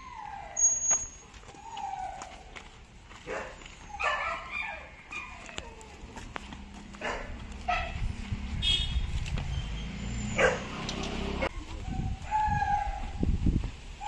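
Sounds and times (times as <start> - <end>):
dogs barking: 3.2 - 5.9, 6.8 - 8.2, 10.2 - 13.2.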